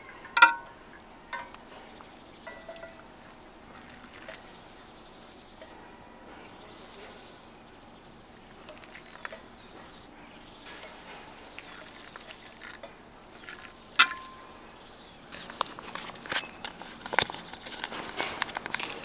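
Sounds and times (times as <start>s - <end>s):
sharp metallic clink: 0.4s - 0.8s
water pouring into pan: 11.6s - 14.3s.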